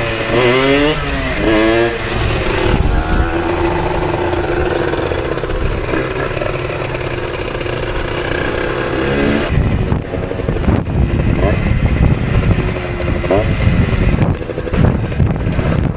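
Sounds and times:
wind on microphone: 1.3s - 7.4s.

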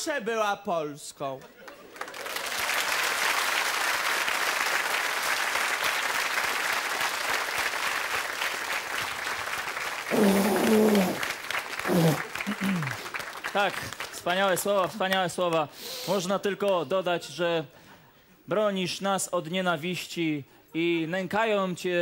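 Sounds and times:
audience applauding: 1.6s - 15.7s.

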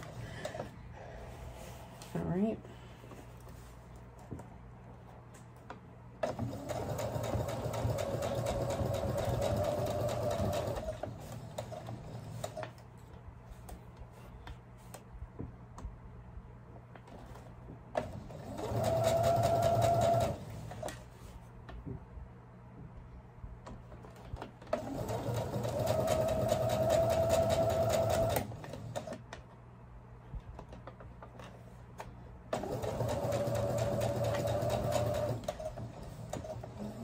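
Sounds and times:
sewing machine stitching: 6.2s - 12.6s, 18.0s - 21.0s, 24.7s - 29.2s, 32.5s - 37.0s.

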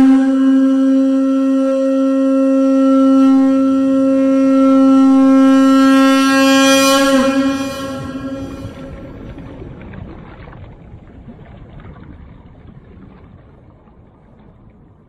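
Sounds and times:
conch shell blown: 0.0s - 9.7s.

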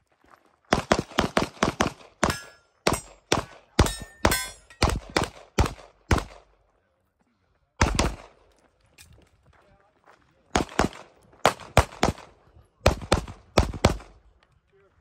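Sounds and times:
rapid pistol fire: 0.7s - 6.5s, 7.8s - 8.4s, 10.6s - 14.2s.

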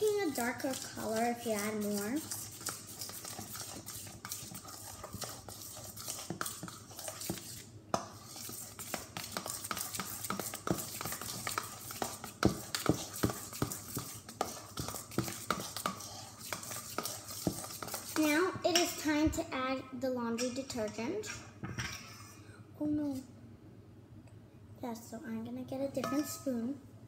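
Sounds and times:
spoon scraping metal bowl: 0.0s - 19.0s, 26.0s - 26.6s.

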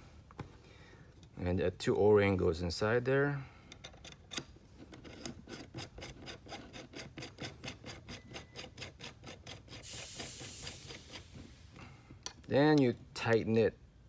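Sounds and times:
brief scraping hiss: 9.8s - 11.8s.

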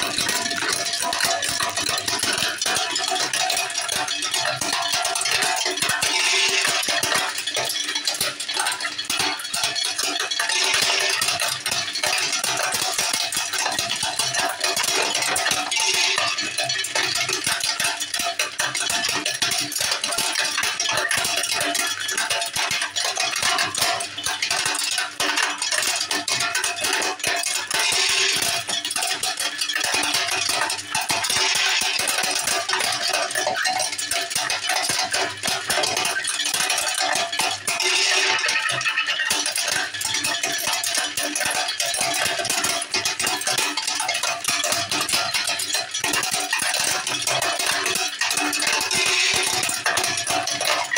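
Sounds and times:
shells rattling into a bowl: 26.2s - 50.9s.

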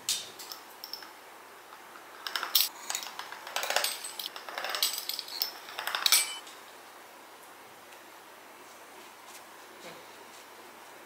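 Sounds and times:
metal utensils clinking on cookware: 2.3s - 6.4s.

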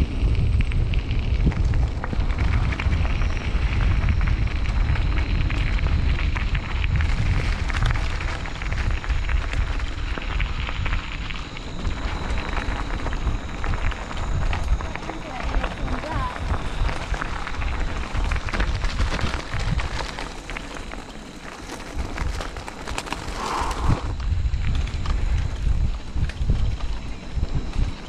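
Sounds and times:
bike rattling on rough ground: 0.0s - 28.0s
wind buffeting microphone: 0.0s - 28.0s.

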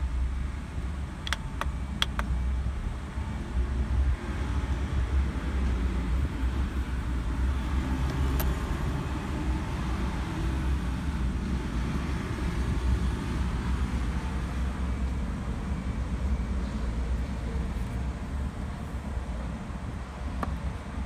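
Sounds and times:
sharp click: 1.2s - 2.3s.

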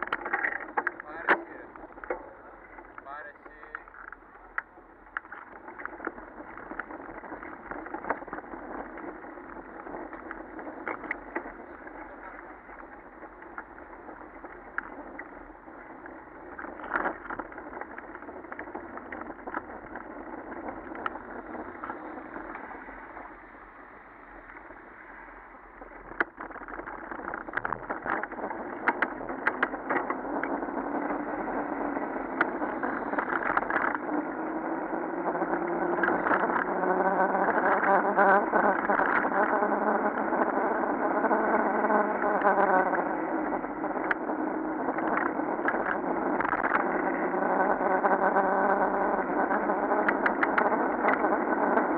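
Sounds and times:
wind noise on microphone: 0.0s - 51.9s
vehicle engine revving: 26.8s - 51.9s.

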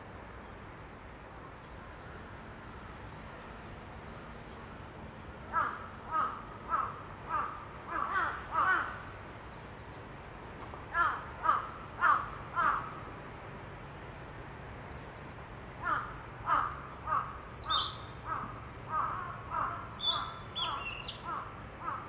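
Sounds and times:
crow cawing: 5.5s - 9.0s, 10.9s - 13.0s, 15.8s - 22.0s.

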